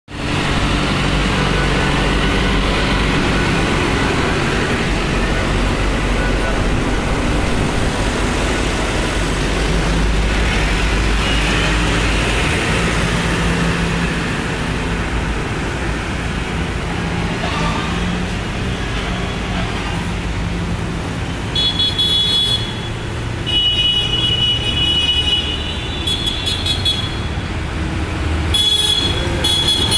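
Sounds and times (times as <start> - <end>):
tractor diesel engines running: 0.1 - 23.8, 26.0 - 29.9.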